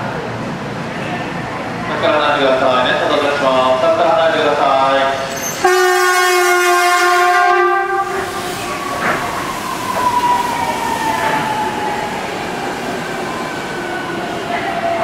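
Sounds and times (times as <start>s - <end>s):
monorail horn blast: 5.4s - 8.3s.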